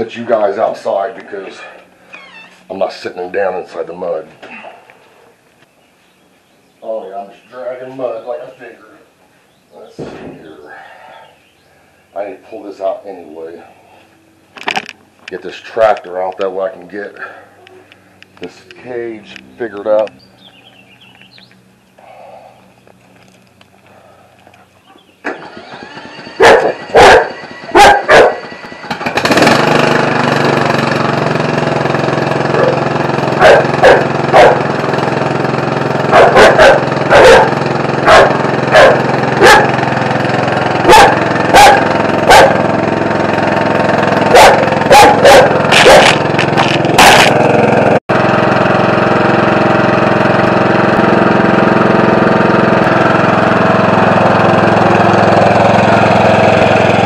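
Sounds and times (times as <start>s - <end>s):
riding mower engine running: 0.0s - 4.3s, 10.7s - 57.0s
dogs barking: 26.4s - 28.5s, 32.5s - 32.8s, 33.4s - 34.8s, 36.0s - 39.8s, 40.8s - 42.7s, 44.2s - 46.2s, 47.0s - 47.3s.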